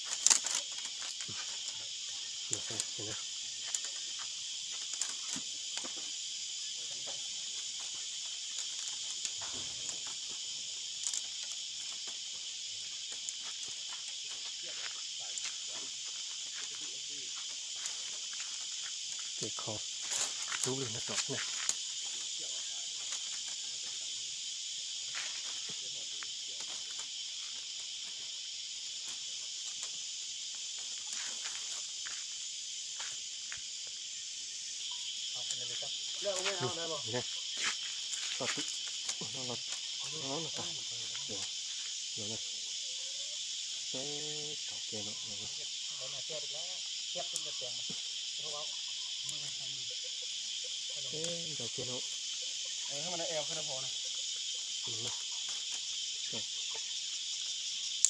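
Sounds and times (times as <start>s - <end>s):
bamboo strips rustling and clicking: 0.0s - 6.2s, 6.8s - 24.2s, 24.9s - 32.4s, 35.3s - 41.7s, 54.2s - 58.0s
high-pitched insect chorus: 0.0s - 58.0s.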